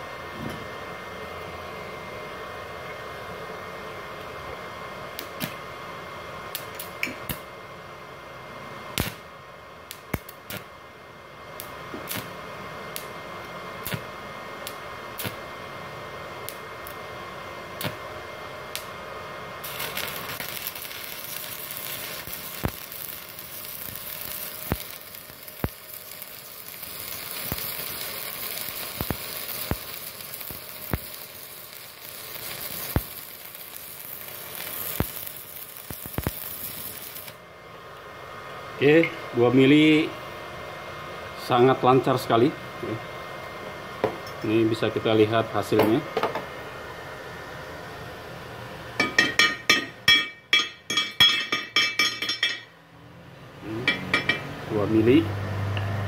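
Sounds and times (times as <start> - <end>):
faint steady hum: 0.0 - 55.1
welding arc crackling and sizzling: 4.0 - 7.6, 8.4 - 37.5.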